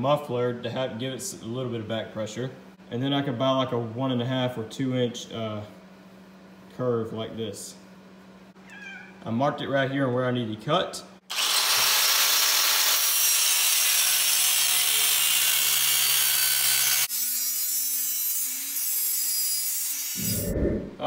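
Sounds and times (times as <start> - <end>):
angle grinder cutting metal: 11.3 - 20.5.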